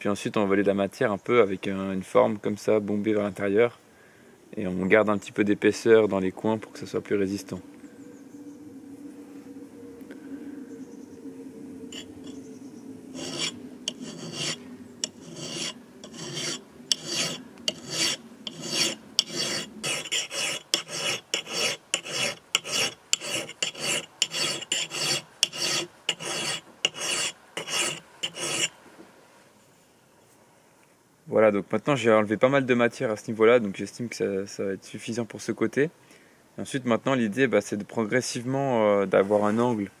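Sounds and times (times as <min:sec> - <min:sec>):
file rasping on steel: 0:13.2 - 0:28.7.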